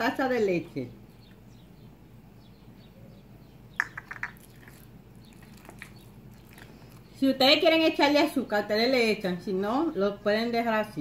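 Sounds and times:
masher mashing plantains in bowl: 0:03.8 - 0:07.3.

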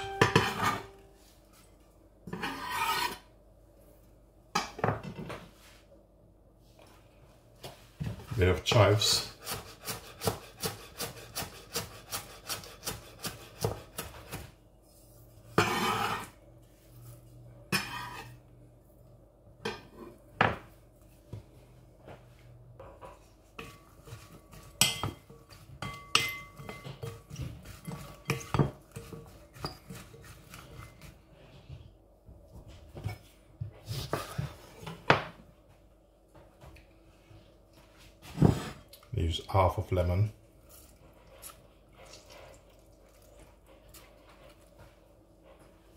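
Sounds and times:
knife scraping board: 0:00.3 - 0:01.0, 0:02.3 - 0:03.3, 0:09.2 - 0:14.5, 0:15.5 - 0:16.4, 0:17.7 - 0:18.4
knife chopping on wooden board: 0:09.4 - 0:14.5.

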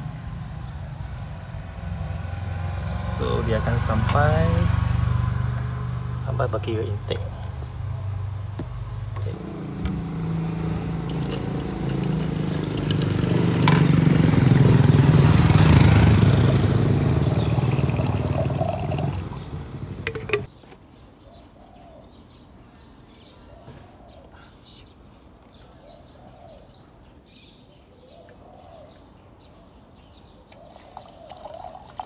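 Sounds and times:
car engine idling: 0:09.0 - 0:20.5
liquid pouring into bottle: 0:10.8 - 0:14.1, 0:16.4 - 0:19.4, 0:30.5 - 0:32.0.

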